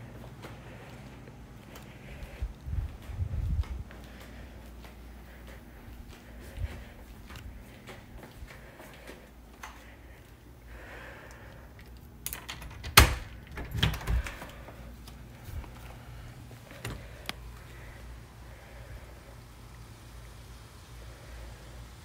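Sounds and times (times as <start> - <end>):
door lock clicks: 12.2 - 14.3
door thumping: 12.6 - 14.5.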